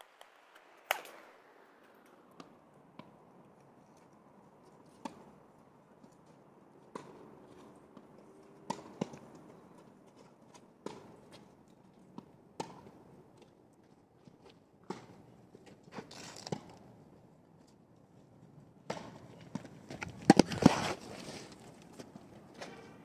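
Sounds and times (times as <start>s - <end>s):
tennis ball pops: 0.1s - 3.2s, 8.6s - 9.2s.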